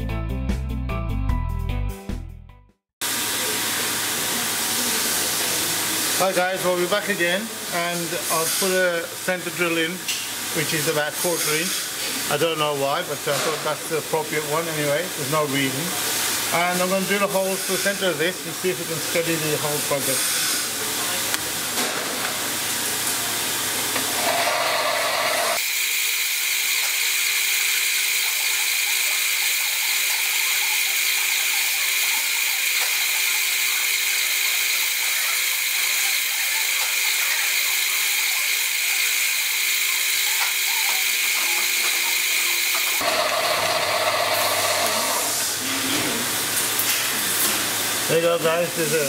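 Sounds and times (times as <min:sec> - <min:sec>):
hiss: 0:20.0 - 0:20.8
lathe motor whining: 0:23.9 - 0:45.5.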